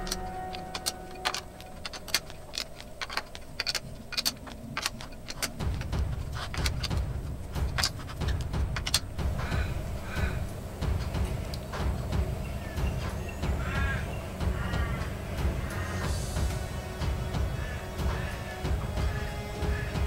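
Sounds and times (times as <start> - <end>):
hex key metallic clicks: 0.0 - 9.5
low rumble: 0.0 - 20.0.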